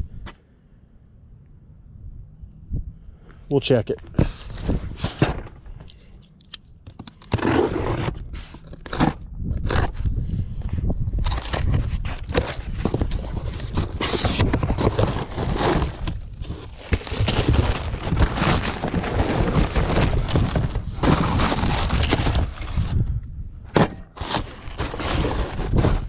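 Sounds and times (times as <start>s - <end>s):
cardboard scraping: 4.1s - 5.7s, 7.2s - 10.0s, 11.2s - 23.1s, 23.8s - 26.0s
plastic rustling and crinkling: 11.2s - 23.0s, 24.2s - 26.0s.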